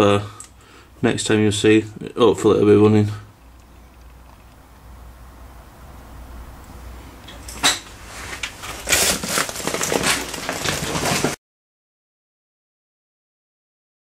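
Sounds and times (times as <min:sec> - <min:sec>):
rustling clattering and knocking: 0:07.2 - 0:11.4.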